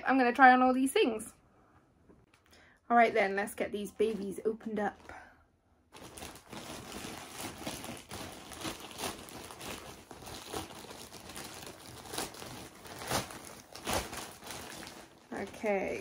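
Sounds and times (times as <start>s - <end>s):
packaging crinkling and rustling: 5.9s - 16.0s.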